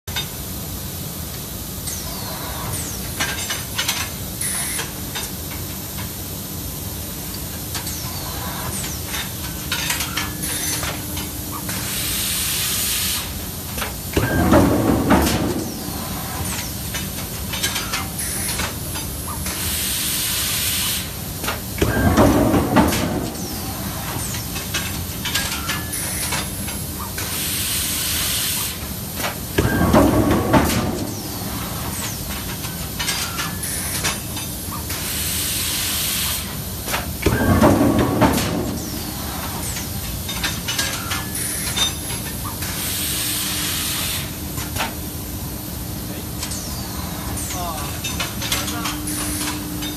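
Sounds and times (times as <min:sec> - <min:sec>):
pneumatic gear clicks and clanks: 0:01.3 - 0:06.2, 0:07.3 - 0:45.0, 0:46.4 - 0:49.9
pneumatic air-blast hiss: 0:11.6 - 0:14.4, 0:19.4 - 0:21.2, 0:25.7 - 0:29.8, 0:34.8 - 0:36.6, 0:40.9 - 0:44.4
loud forging clanks: 0:13.8 - 0:18.8, 0:21.4 - 0:27.3, 0:29.6 - 0:34.5, 0:36.9 - 0:42.4.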